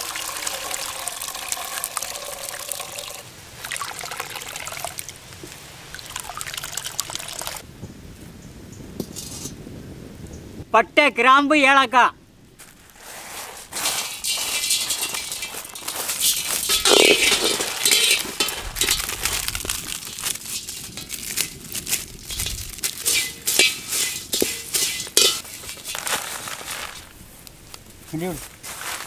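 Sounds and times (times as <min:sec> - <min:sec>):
spices rattling in iron pan: 0:13.7 - 0:27.2.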